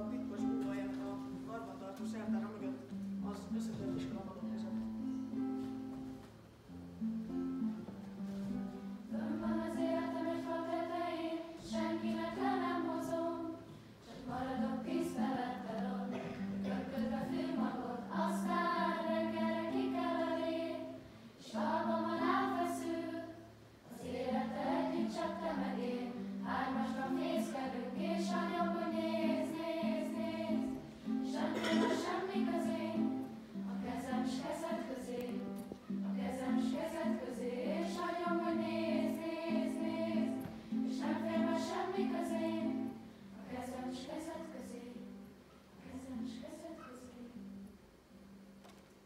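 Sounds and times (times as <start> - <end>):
guitar accompaniment: 0.0 - 23.2, 23.9 - 43.8.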